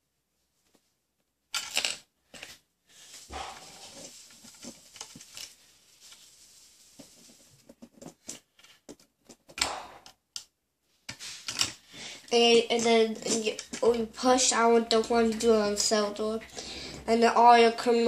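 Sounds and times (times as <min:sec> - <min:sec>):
plastic toy bricks clicking: 0:01.5 - 0:02.0.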